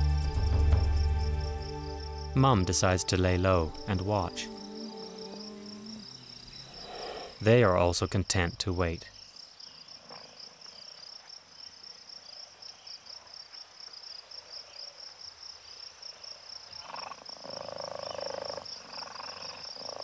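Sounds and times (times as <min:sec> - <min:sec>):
frogs croaking: 0:00.0 - 0:20.0
insects chirring: 0:00.0 - 0:20.0.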